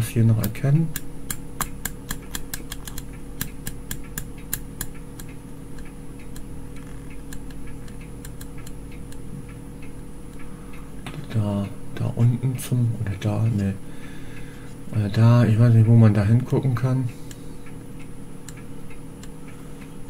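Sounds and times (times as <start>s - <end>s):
low hum: 0.0s - 20.0s
rotary switch clicks: 0.3s - 10.5s, 16.4s - 19.9s.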